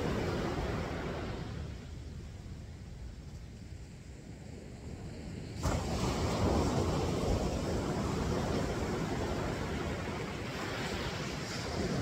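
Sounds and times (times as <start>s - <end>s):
ocean surf washing on beach: 0.0s - 2.4s, 3.8s - 12.0s
wind on microphone: 0.0s - 12.0s.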